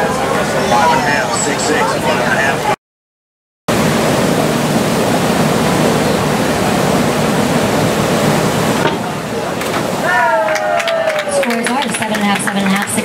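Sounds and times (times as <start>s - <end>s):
steady rushing noise: 3.7s - 10.1s.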